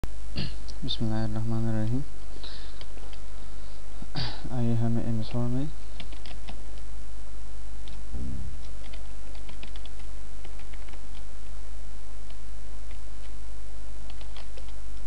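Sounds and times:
steady low hum: 0.0 - 15.0
keyboard typing: 6.0 - 6.6, 8.6 - 11.3, 14.0 - 15.0.

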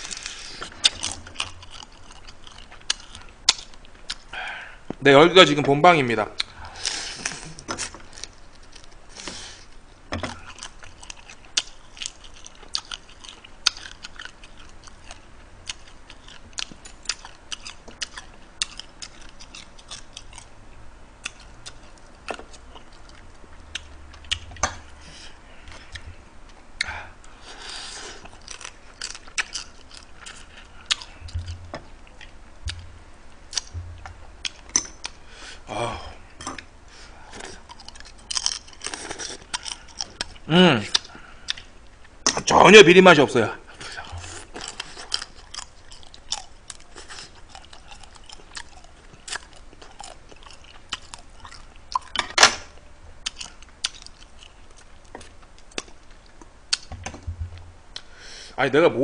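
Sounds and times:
chewing and lip smacks: 28.2 - 32.9, 43.8 - 52.2.

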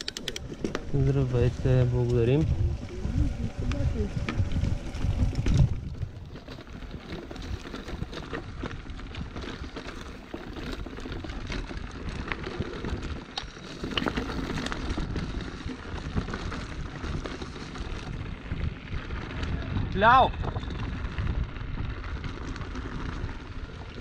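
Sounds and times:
low rumble: 0.7 - 8.2.

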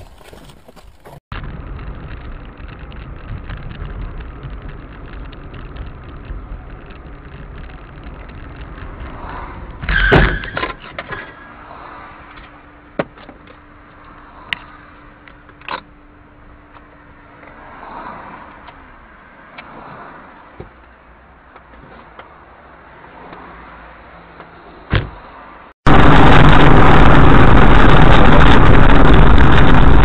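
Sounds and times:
car engine and road rumble: 0.0 - 30.0
loud thump of car collision: 24.9 - 25.2.

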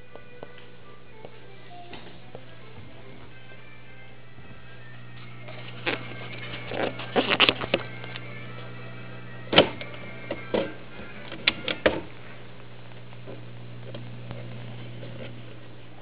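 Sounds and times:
loudspeaker low hum: 0.8 - 16.0
crackles and pops: 11.4 - 15.8.

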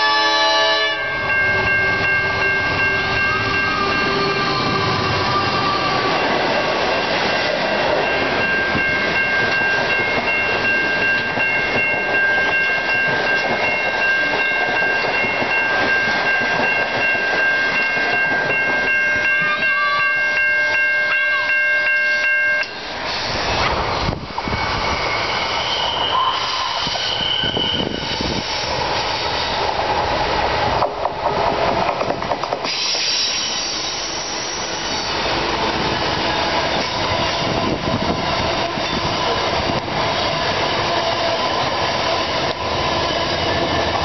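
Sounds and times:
train wheels clattering: 30.6 - 40.9.

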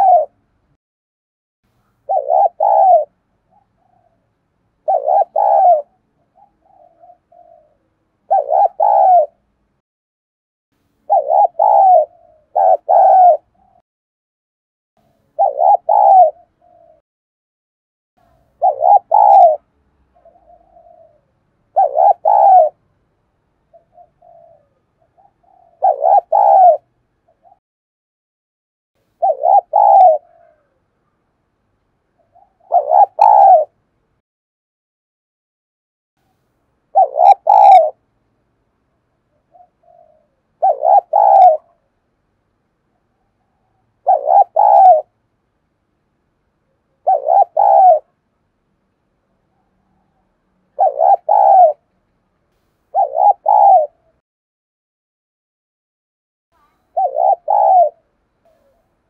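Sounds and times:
dove cooing: 0.0 - 0.4, 1.8 - 9.4, 11.1 - 13.8, 15.0 - 17.0, 18.2 - 22.8, 23.7 - 27.6, 29.1 - 31.0, 32.2 - 33.8, 36.9 - 38.0, 39.3 - 41.9, 43.1 - 45.2, 46.9 - 48.2, 49.5 - 51.9, 52.9 - 54.2, 56.6 - 58.9.

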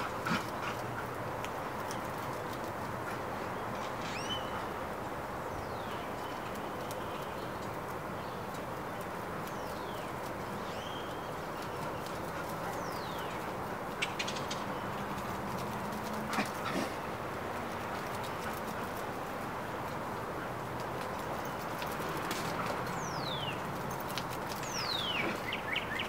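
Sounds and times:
steady background hiss: 0.0 - 26.0
bird chirps: 9.4 - 15.0, 24.5 - 26.0.

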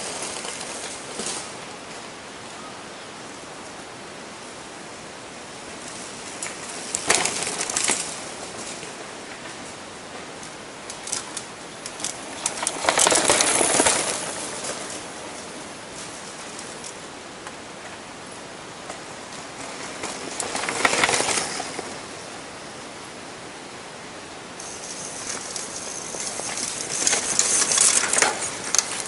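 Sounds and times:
bike rattling and clicking: 0.0 - 1.5, 6.2 - 9.6, 10.4 - 17.0, 19.4 - 22.1, 24.6 - 29.0
mountain bikes passing on dirt: 0.0 - 2.1, 5.6 - 23.0, 24.4 - 29.0
steady background hiss: 0.0 - 29.0.

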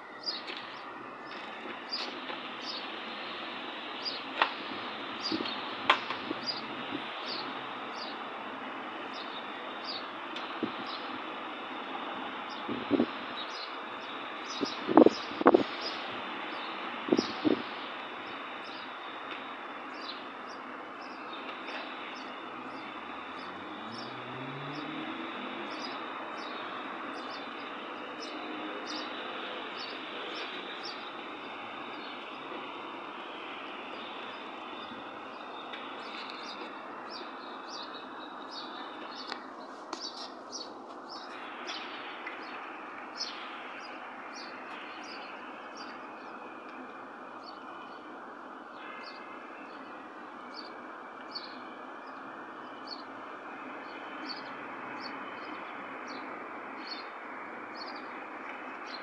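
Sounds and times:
small birds chirping: 0.0 - 59.0
traffic hum: 0.0 - 59.0
engine rising in pitch: 21.4 - 39.3.

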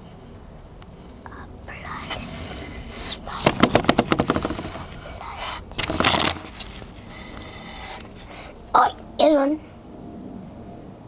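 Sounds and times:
scraping rustle: 1.0 - 8.6
fingers tapping wooden surface: 3.4 - 4.8.

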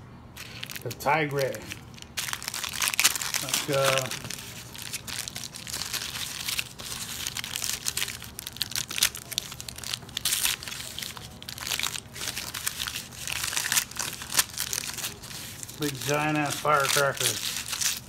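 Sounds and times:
paper wrapping tearing and crinkling: 0.4 - 18.0.

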